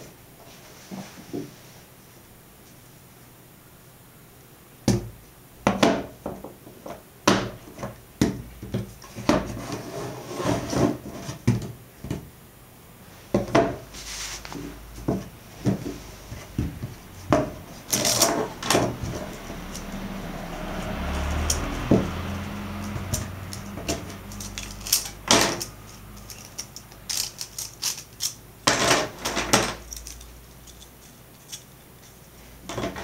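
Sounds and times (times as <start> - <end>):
wood rubbing and sliding: 13.6 - 20.8.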